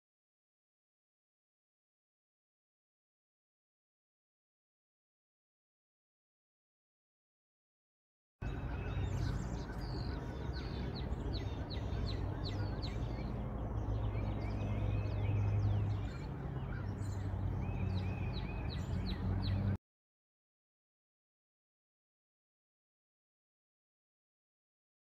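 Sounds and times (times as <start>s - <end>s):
small birds chirping: 8.4s - 19.8s
steady low hum: 8.4s - 19.8s.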